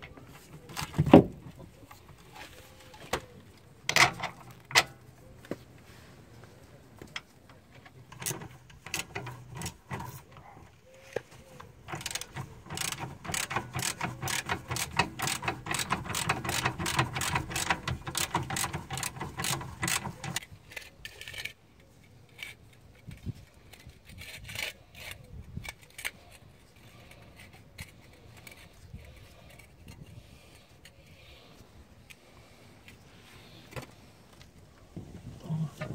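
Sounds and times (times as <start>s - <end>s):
hand tool clicking: 11.6s - 21.6s.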